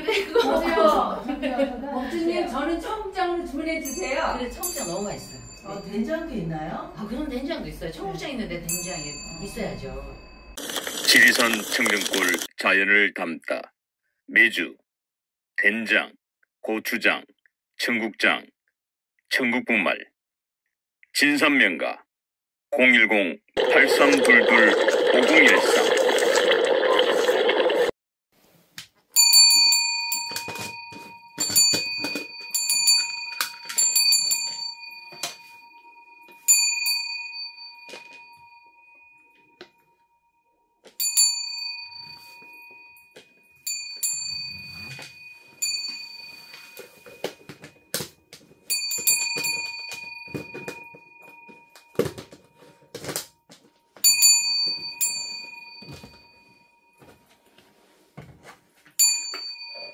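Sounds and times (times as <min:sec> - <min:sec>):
singing bowl ringing: 0:29.2 - 0:48.0, 0:48.6 - 0:52.8, 0:54.0 - 0:57.2, 0:59.0 - 0:59.9
spoon and jar clatter: 0:31.5 - 0:34.5.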